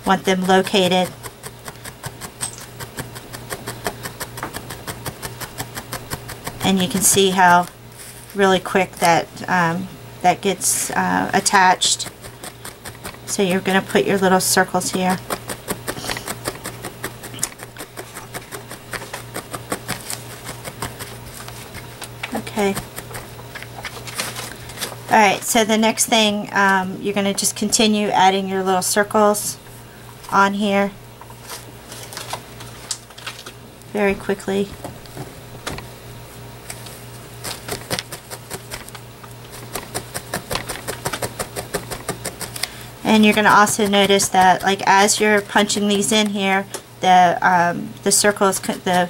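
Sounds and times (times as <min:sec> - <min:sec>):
felting needle punching foam: 0:00.0 - 0:08.4, 0:10.8 - 0:23.9, 0:37.4 - 0:46.3
steady low hum: 0:00.0 - 0:49.0.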